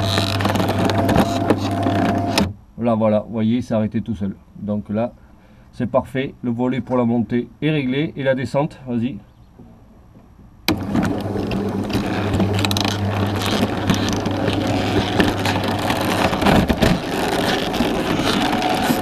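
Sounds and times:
roller shutter motor humming: 0.0 - 2.5, 10.7 - 19.0.

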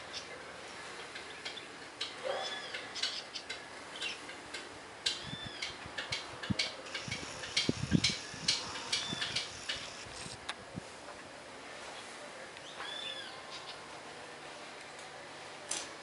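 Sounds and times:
bird chips and ticks: 1.1 - 10.1.

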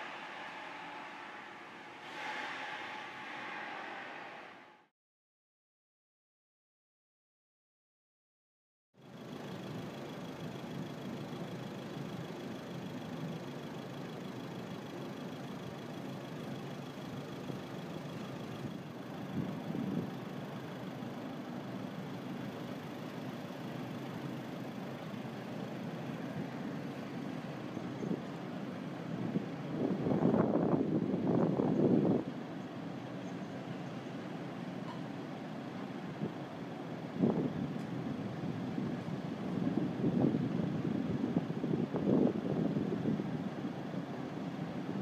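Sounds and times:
faint high whine: 0.0 - 4.9
forklift engine running: 9.0 - 45.0.

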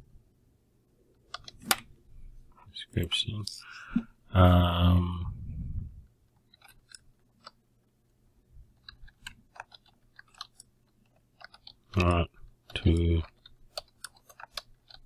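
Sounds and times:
low rumble: 5.2 - 6.1.

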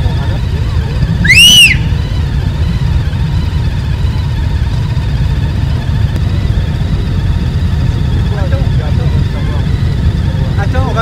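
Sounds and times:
motorcycles idling: 0.0 - 11.0
short high whistle-like tone: 1.2 - 2.2.

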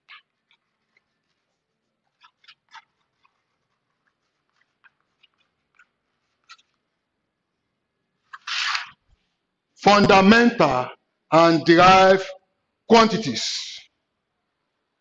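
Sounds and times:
chalk scratching on blackboard: 0.0 - 6.7.

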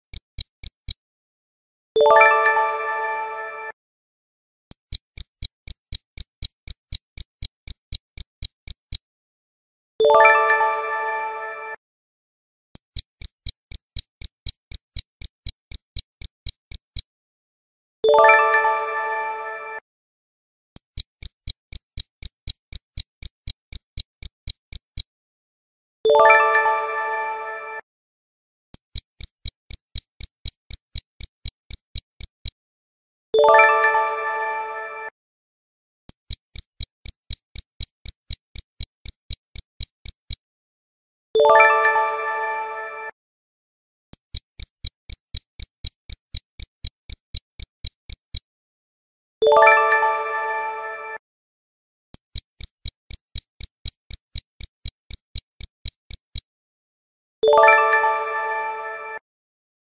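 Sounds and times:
stopwatch ticking: 0.0 - 1.0, 4.7 - 9.0, 12.8 - 17.1, 20.8 - 25.1, 28.8 - 32.6, 36.1 - 40.4, 44.2 - 48.5, 52.2 - 56.5.

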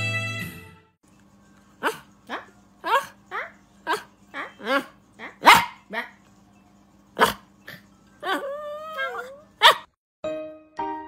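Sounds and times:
dog whining: 1.8 - 6.1, 7.2 - 9.9
small dog yapping and yelping: 1.8 - 6.1, 8.2 - 9.9.

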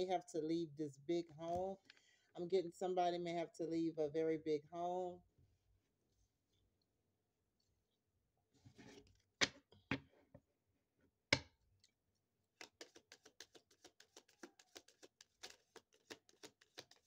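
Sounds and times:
cards rustling: 12.6 - 17.0
cards shuffling clicks: 12.6 - 17.0.

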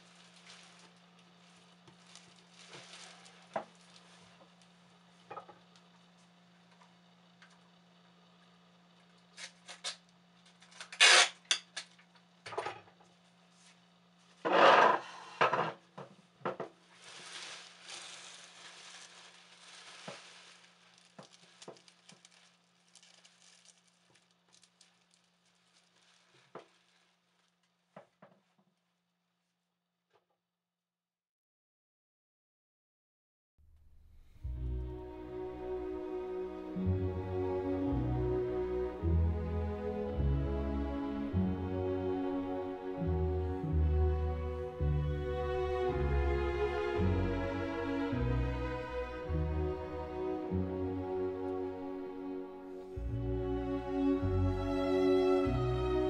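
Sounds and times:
objects clattering and knocking: 14.4 - 24.8.

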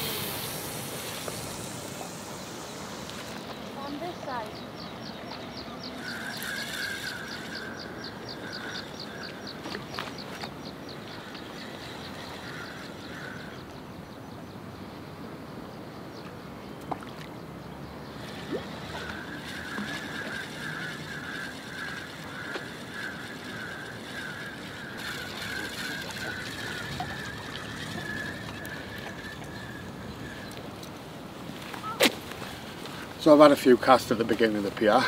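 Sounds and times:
fishing reel whirring: 0.0 - 3.5, 6.0 - 9.2, 18.2 - 30.6
light wind: 0.0 - 35.0
sea noise: 0.0 - 35.0.

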